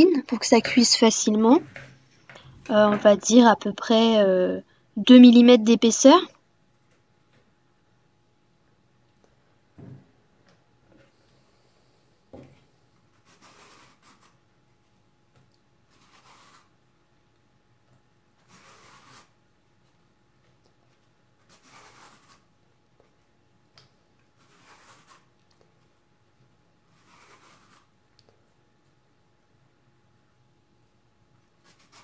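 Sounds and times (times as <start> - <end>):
soft knock: 9.8 - 10.1.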